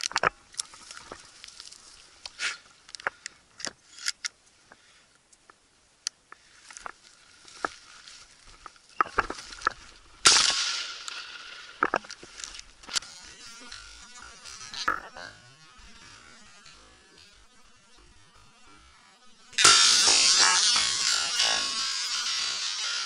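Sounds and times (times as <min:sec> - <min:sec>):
footsteps crunching through dry grass: 0:06.6 - 0:21.1.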